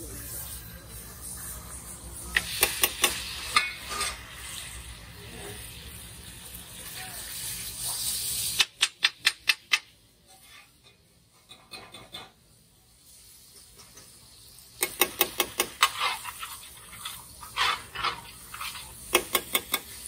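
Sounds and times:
metal ladle tapping griddle: 0:17.5 - 0:20.0.

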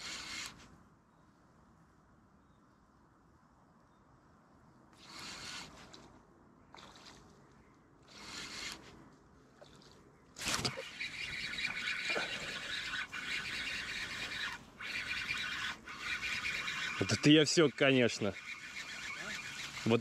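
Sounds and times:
fishing reel gear whir: 0:00.0 - 0:00.6, 0:05.0 - 0:06.1, 0:08.1 - 0:09.0, 0:09.6 - 0:20.0.

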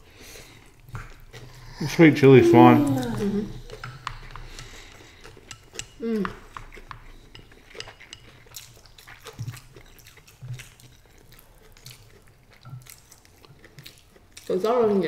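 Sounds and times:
short falling vocal hum: 0:01.6 - 0:03.6.

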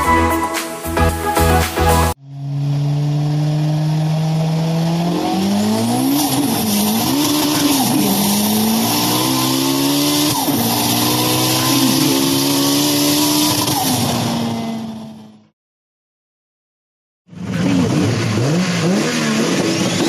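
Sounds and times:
race car engine revving: 0:02.3 - 0:15.4, 0:17.3 - 0:20.0.

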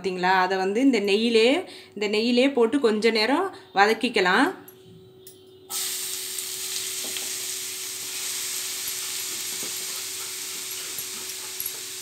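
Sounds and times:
carrot sizzling in hot fat: 0:05.7 - 0:12.0
small frying crackles: 0:05.7 - 0:12.0.

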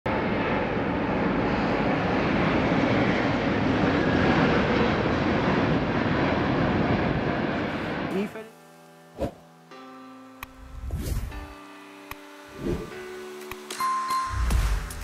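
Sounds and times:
jet engines rushing drone: 0:00.1 - 0:08.4, 0:10.3 - 0:13.7.

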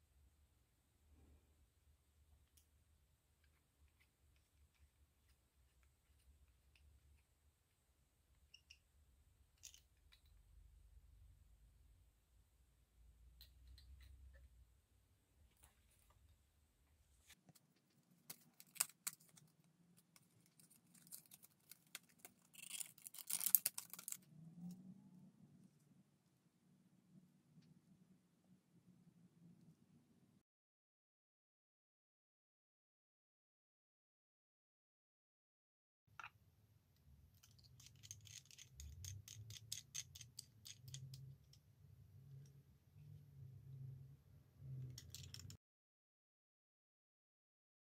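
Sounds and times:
crinkly packaging rustle: 0:17.4 - 0:24.2.

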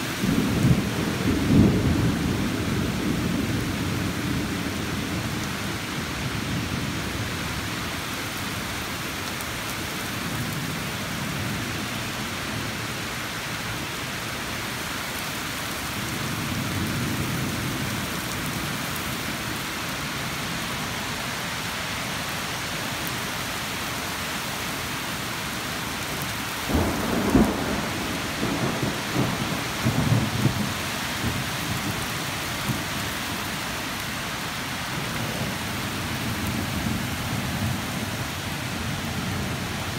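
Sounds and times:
steady rain: 0:00.0 - 0:39.9
crackling thunder clap: 0:26.7 - 0:32.8
thunder rumbling: 0:26.7 - 0:32.9.

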